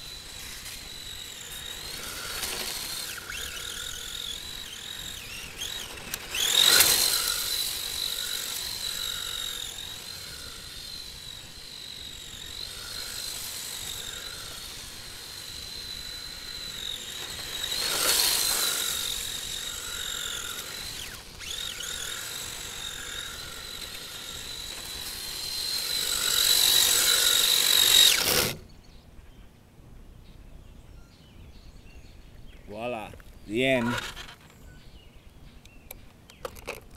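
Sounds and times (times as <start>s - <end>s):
rc car electric motor whine: 0.0s - 28.8s, 33.5s - 34.8s.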